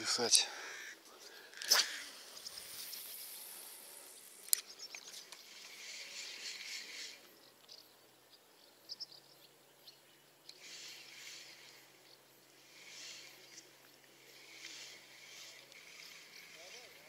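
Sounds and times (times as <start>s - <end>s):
small ticks: 4.4s - 7.9s, 9.8s - 12.2s, 12.8s - 17.0s.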